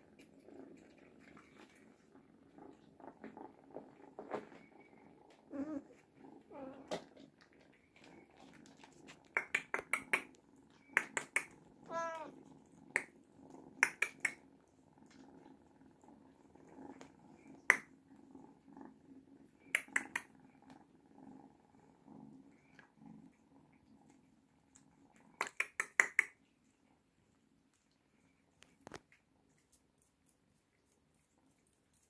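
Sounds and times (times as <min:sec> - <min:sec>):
cats purring: 0:00.0 - 0:32.0
cat meowing: 0:11.8 - 0:12.4.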